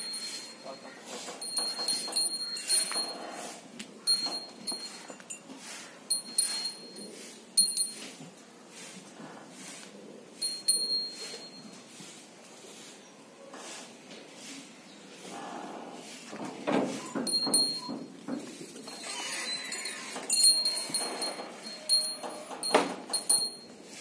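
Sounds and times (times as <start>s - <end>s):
metal dog collar clinking: 0.0s - 3.4s, 4.0s - 5.5s, 6.1s - 8.1s, 17.0s - 18.0s, 18.8s - 23.7s.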